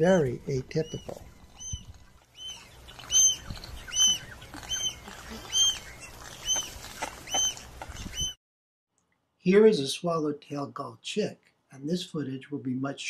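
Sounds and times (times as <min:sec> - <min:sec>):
gull calling: 0:00.8 - 0:08.4.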